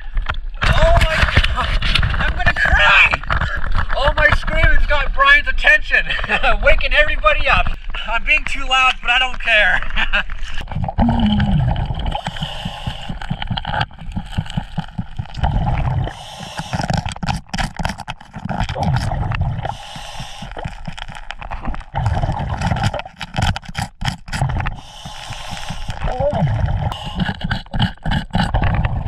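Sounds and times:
underwater water rushing and bubbles: 9.8s - 29.0s
metal tool scraping rock: 22.5s - 26.1s.

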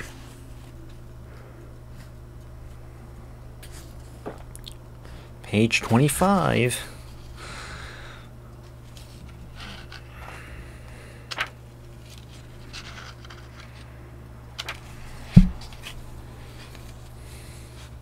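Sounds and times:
steady low hum: 0.0s - 18.0s
paper pages rustling: 11.3s - 13.8s
dull thump: 15.3s - 15.7s.

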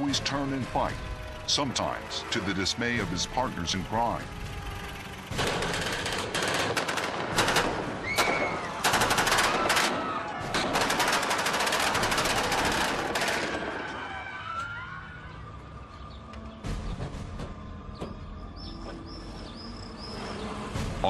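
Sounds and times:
gunshots and automatic fire: 5.1s - 14.1s.

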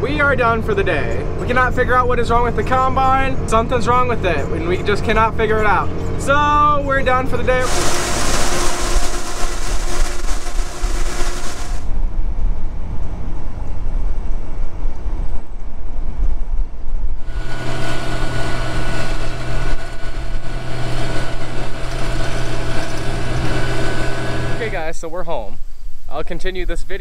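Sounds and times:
engine hum: 0.0s - 24.8s
beans pouring into hopper: 7.6s - 11.9s
pickup truck rumble: 17.2s - 24.7s.

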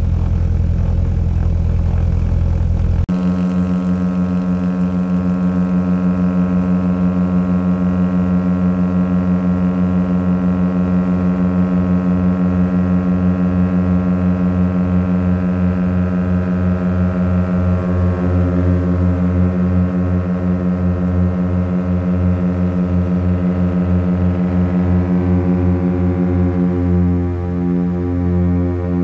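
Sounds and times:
propeller plane engines droning: 0.0s - 29.0s.

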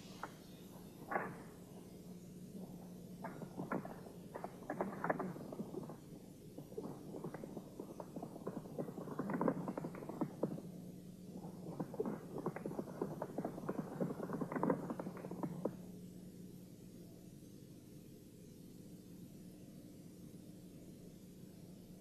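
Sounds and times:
low steady hum: 0.0s - 22.0s
horse galloping on dirt: 3.3s - 10.7s.

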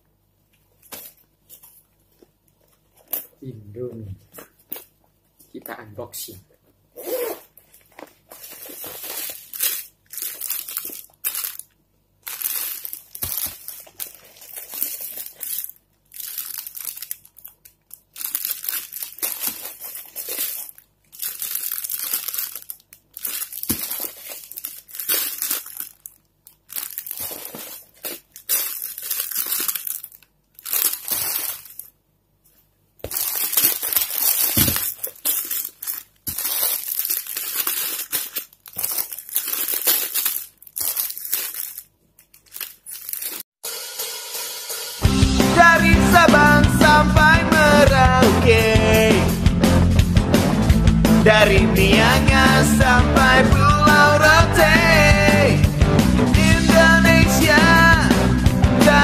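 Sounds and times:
plastic wrappers crinkling: 0.5s - 3.5s, 7.0s - 43.6s.

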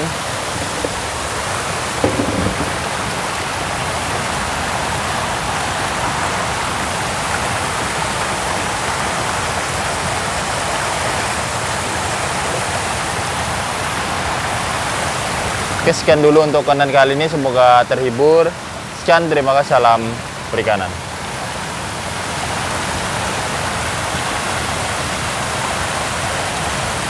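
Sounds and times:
water rushing: 0.0s - 27.0s.

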